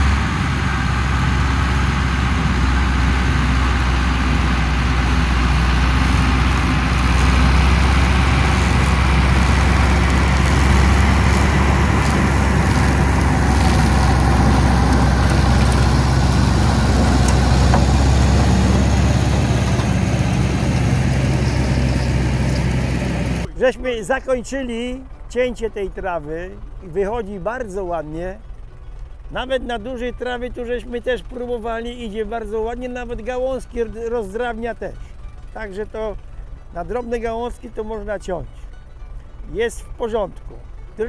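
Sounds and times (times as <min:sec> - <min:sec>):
flail harvester whirring hiss: 0:00.0 - 0:23.5
tractor diesel engine drone: 0:00.0 - 0:41.0.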